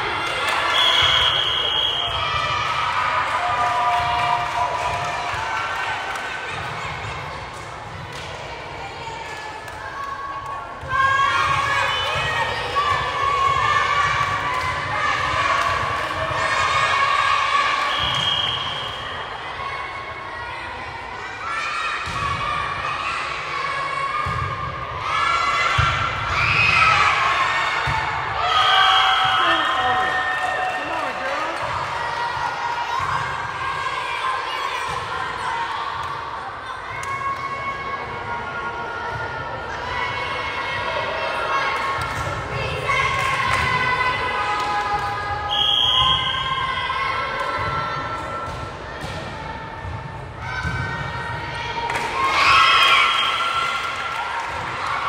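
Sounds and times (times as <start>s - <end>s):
noise of players and spectators: 0.0s - 55.0s
referee's whistle: 0.6s - 2.3s, 17.8s - 19.2s, 45.5s - 46.6s.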